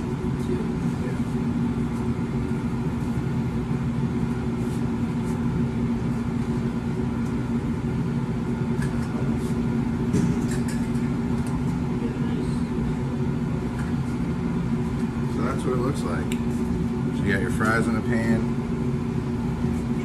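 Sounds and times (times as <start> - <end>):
kitchen equipment humming: 0.0 - 20.0.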